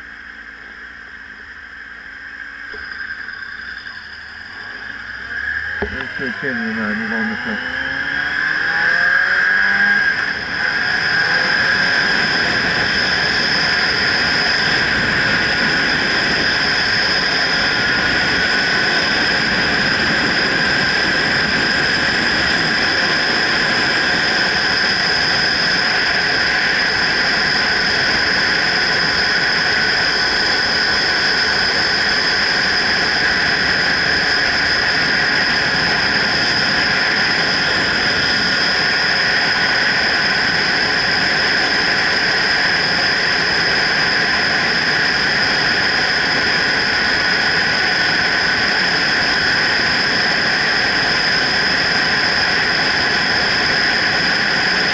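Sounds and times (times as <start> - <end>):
motorcycle engine running: 0.0 - 25.1
high whistling tone: 1.5 - 6.0
wind rushing over microphone: 4.0 - 54.9.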